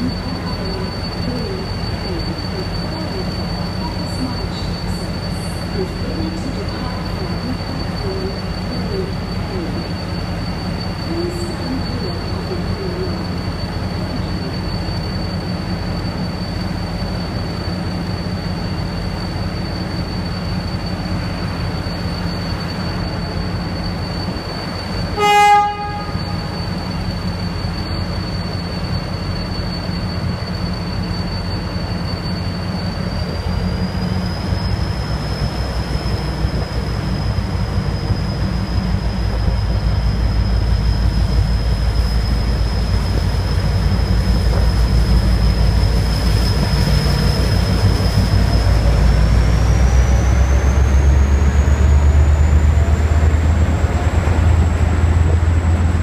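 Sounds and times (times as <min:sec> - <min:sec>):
diesel locomotive engine drone: 0:00.0 - 0:56.0
locomotive horn blast: 0:25.1 - 0:26.6.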